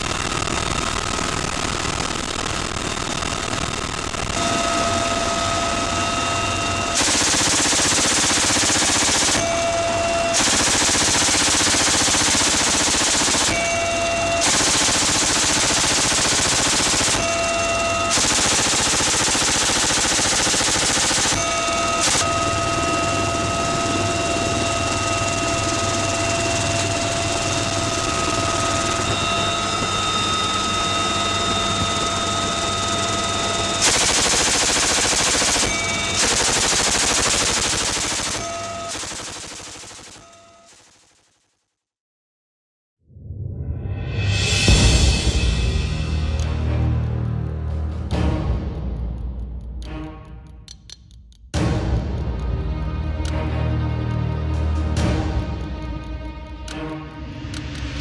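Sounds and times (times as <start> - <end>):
helicopter turbine whine: 0.0 - 41.2
machine gun firing bursts: 7.0 - 22.4, 33.8 - 41.3.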